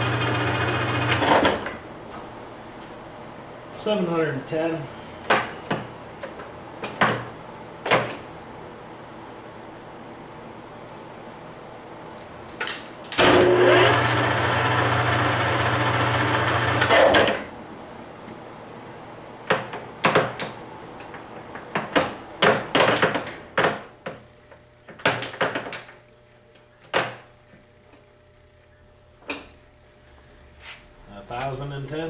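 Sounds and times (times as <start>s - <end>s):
lathe gearing running: 0.0s - 1.3s, 13.2s - 16.9s.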